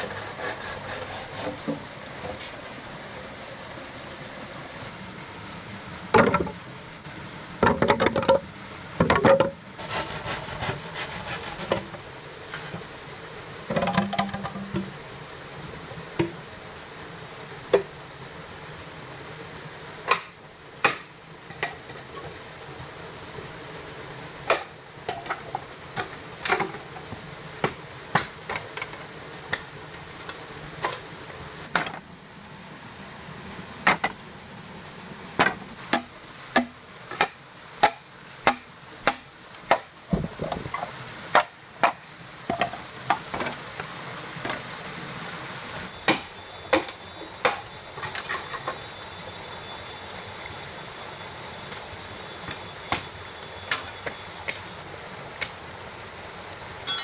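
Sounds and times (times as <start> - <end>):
stream water rushing: 0.0 - 57.0
bamboo being chopped: 20.1 - 21.1, 35.4 - 39.9, 46.0 - 47.7.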